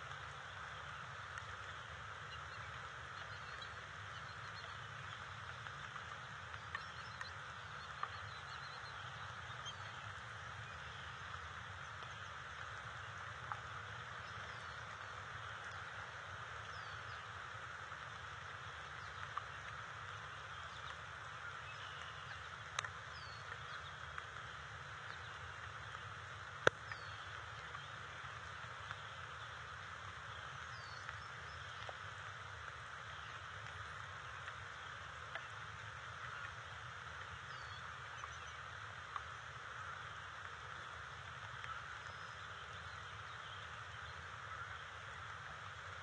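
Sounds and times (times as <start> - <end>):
outdoor hiss: 0.0 - 46.0
faint bird chirps: 0.4 - 17.4, 18.8 - 24.1.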